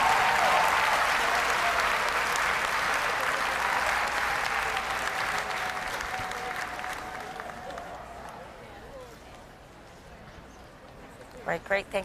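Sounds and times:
arena audience applauding: 0.0s - 8.7s.

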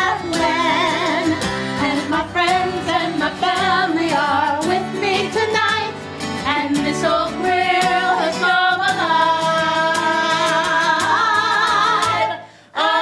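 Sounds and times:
musical theatre singing: 6.5s - 13.0s.

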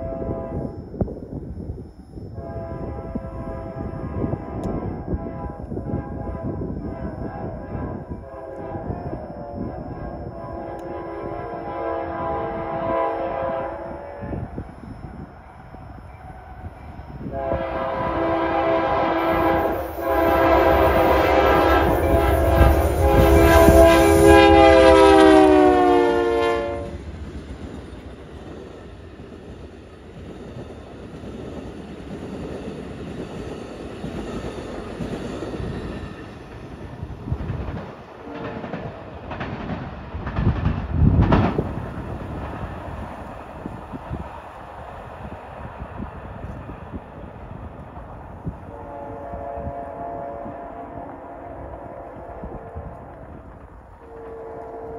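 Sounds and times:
locomotive horn blast: 0.0s - 0.8s, 2.4s - 14.6s, 16.4s - 27.0s, 38.2s - 38.8s, 48.7s - 53.3s, 54.0s - 54.9s
train rumble and wheel clatter: 0.0s - 54.9s.

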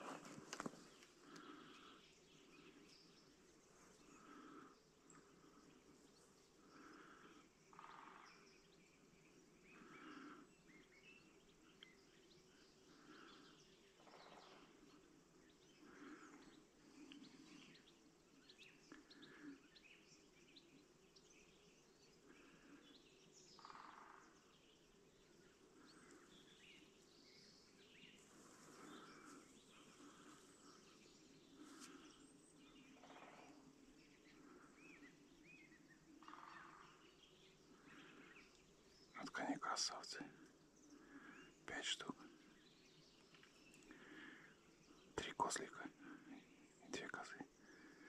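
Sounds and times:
soft noises: 0.0s - 2.0s.

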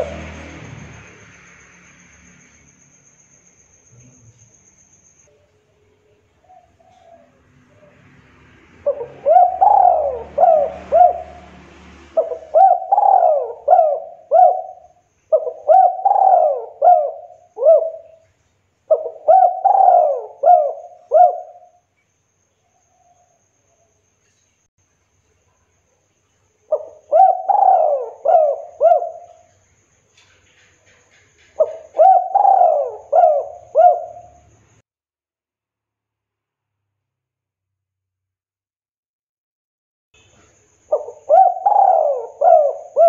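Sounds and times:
dove cooing: 0.0s - 0.5s, 5.4s - 8.0s, 8.8s - 18.2s, 18.9s - 21.8s, 26.7s - 29.5s, 31.5s - 34.5s, 40.9s - 43.0s.

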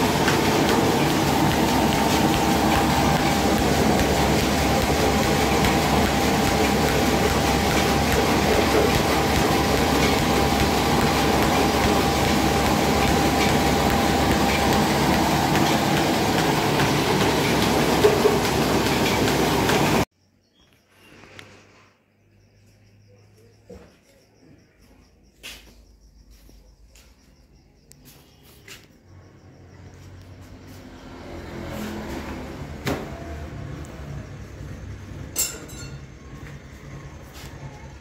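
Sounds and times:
mill motor running: 0.0s - 20.1s.

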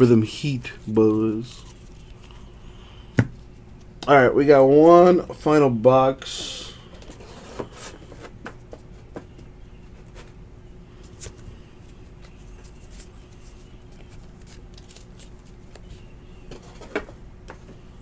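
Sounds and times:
faint steady hum: 0.0s - 18.0s
cards clicking and scratching: 11.0s - 17.7s.

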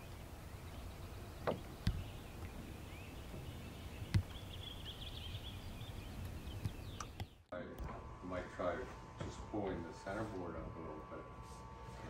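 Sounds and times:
small birds chirping: 0.0s - 7.5s.

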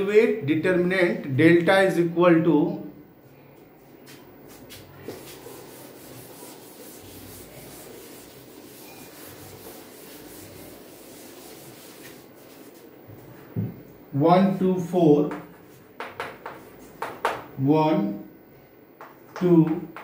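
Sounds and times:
duster rubbing on chalkboard: 4.5s - 12.9s.

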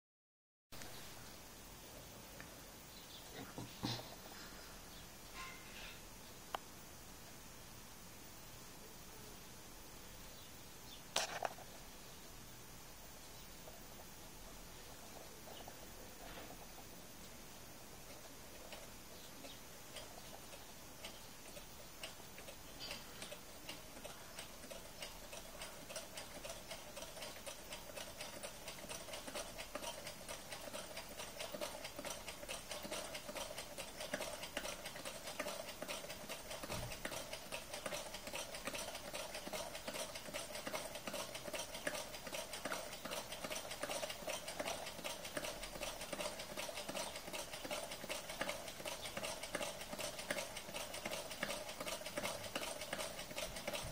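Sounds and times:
small engine rapid clicking: 18.0s - 53.9s.

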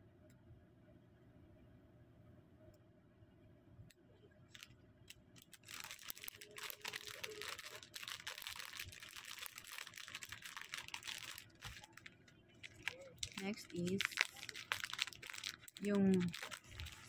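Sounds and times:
plastic bag crinkling: 4.5s - 17.0s.

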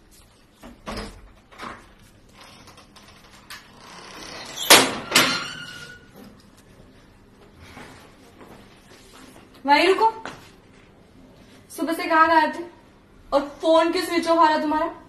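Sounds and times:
metal security door clanking: 4.2s - 6.0s.

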